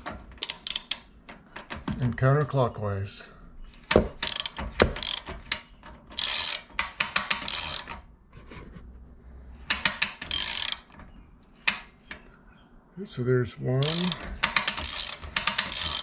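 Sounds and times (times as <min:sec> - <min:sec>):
ratchet wrench clicking: 0:00.4 - 0:01.1, 0:04.2 - 0:05.4, 0:06.2 - 0:07.9, 0:09.7 - 0:10.9, 0:13.8 - 0:16.0.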